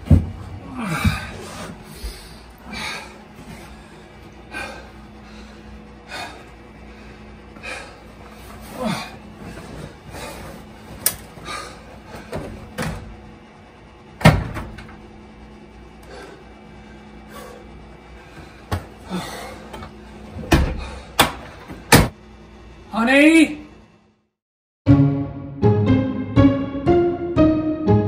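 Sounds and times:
knocks against washing machines: 0.0 - 1.4, 14.2 - 15.0, 20.5 - 22.2.

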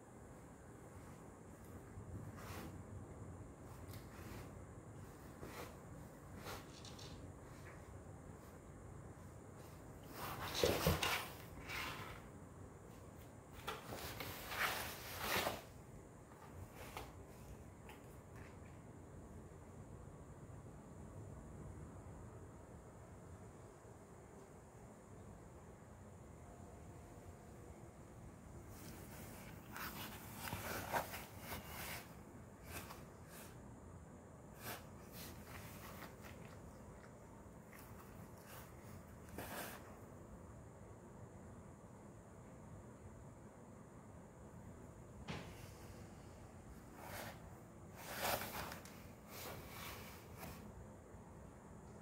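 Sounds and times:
cardboard box scraping on tile: 10.1 - 12.3, 13.8 - 15.7, 28.8 - 33.6, 47.0 - 50.6
cat scraping cardboard box: 29.1 - 33.6, 34.6 - 36.6, 37.7 - 40.0, 46.9 - 50.6.

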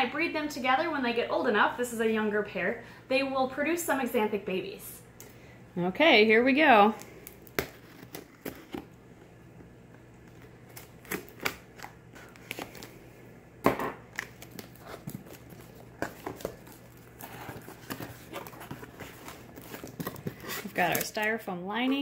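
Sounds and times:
cardboard flaps scraping and crinkling: 14.6 - 21.1.

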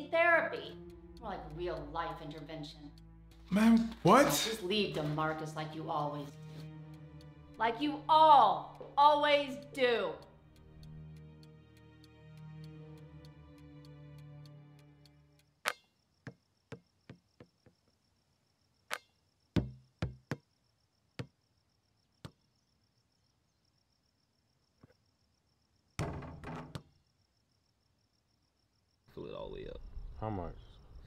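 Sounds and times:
insects chirring: 15.1 - 31.0
basketball bouncing: 19.6 - 20.4, 26.0 - 26.9.

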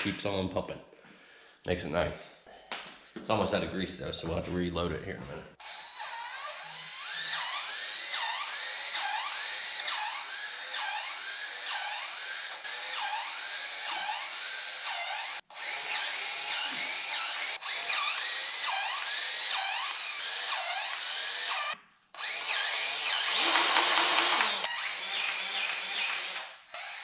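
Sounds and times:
cordless grease gun motor whine: 5.6 - 27.0.

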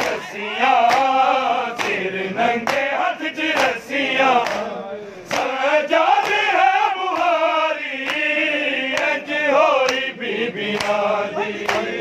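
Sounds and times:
men chanting in unison: 0.0 - 12.0
hands slapping chests: 0.8 - 2.0, 2.6 - 3.8, 4.4 - 4.7, 5.3 - 8.3, 8.9 - 9.2, 9.8 - 10.1, 10.7 - 12.0.

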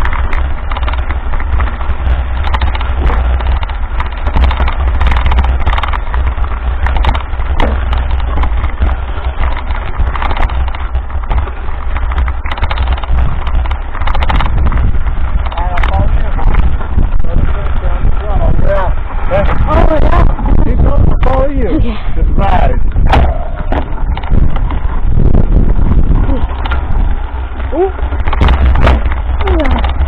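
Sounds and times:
bike rattling over bumps: 0.0 - 30.0
tyres crunching on gravel: 0.0 - 30.0
wind buffeting on microphone: 0.0 - 30.0.

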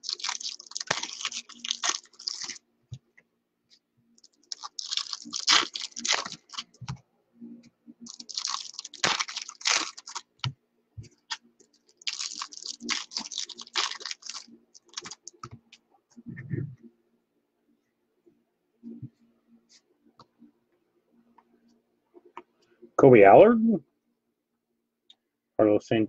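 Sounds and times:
foil wrappers crinkling and tearing: 0.0 - 2.6, 4.2 - 6.8, 8.1 - 10.4, 11.3 - 15.4.

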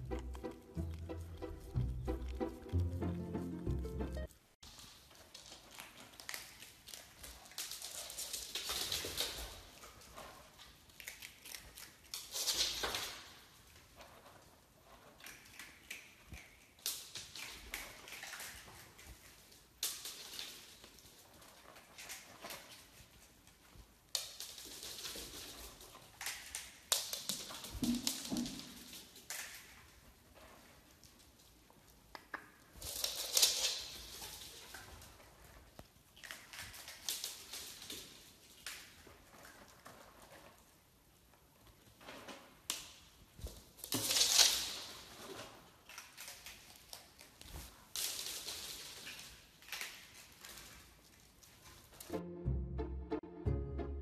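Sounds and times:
claws scrabbling on hard floor: 4.6 - 52.1.

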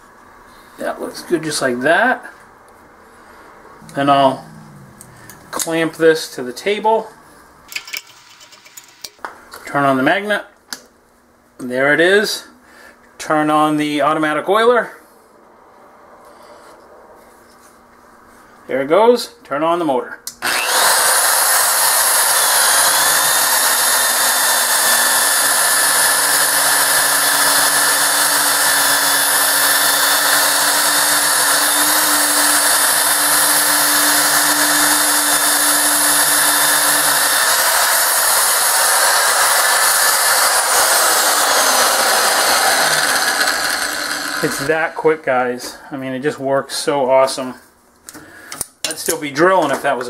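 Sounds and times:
low hum: 3.1 - 7.8
high whine: 3.8 - 9.2
drill boring through steel: 20.4 - 45.0.

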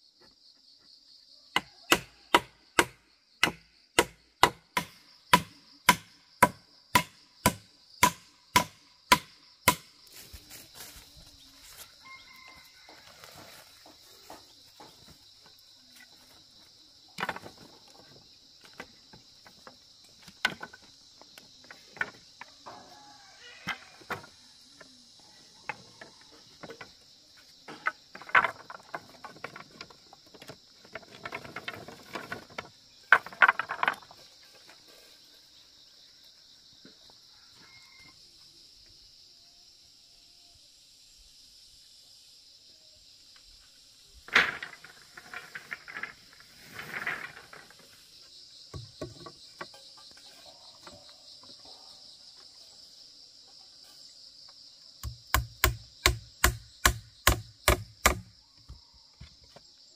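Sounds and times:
insects buzzing: 0.0 - 59.9.

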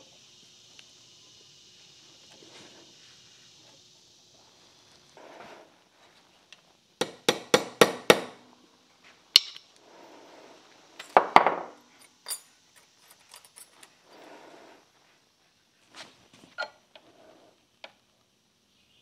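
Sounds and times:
light metal clinks: 11.9 - 14.0.

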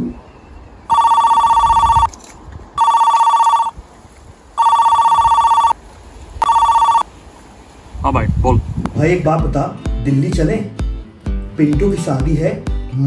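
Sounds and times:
telephone ringing: 0.9 - 2.1, 2.8 - 3.8, 4.6 - 5.8, 6.4 - 7.1.

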